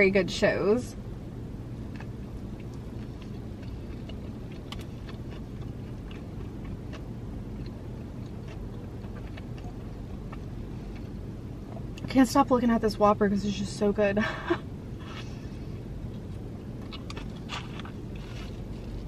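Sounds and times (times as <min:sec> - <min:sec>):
low rumble inside car: 0:00.0 - 0:19.0
person chewing food: 0:01.9 - 0:12.0, 0:16.0 - 0:19.0.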